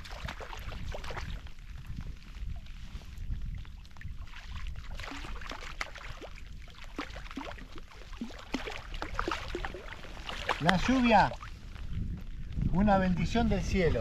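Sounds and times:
water lapping around boat: 0:00.0 - 0:12.3
rain falling on water: 0:07.4 - 0:11.8.

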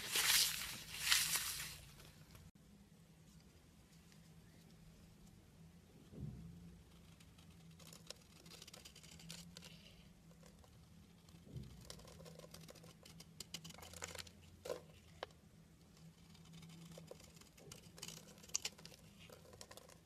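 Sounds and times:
knife carving soap crackling: 0:15.8 - 0:20.0.

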